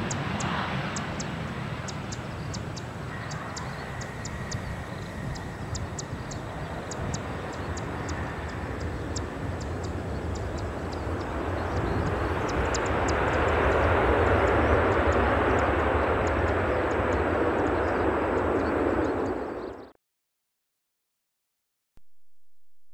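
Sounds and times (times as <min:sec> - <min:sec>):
jet engine roar: 0:00.0 - 0:19.9.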